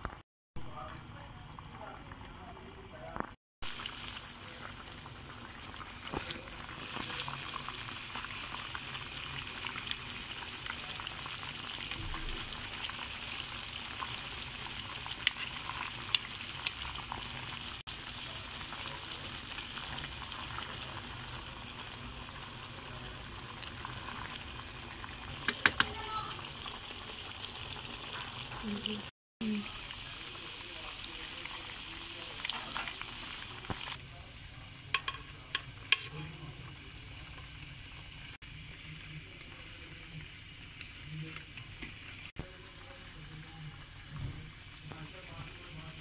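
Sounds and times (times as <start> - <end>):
deep-frying sizzle: 3.0 - 46.0
oil popping: 25.3 - 26.7.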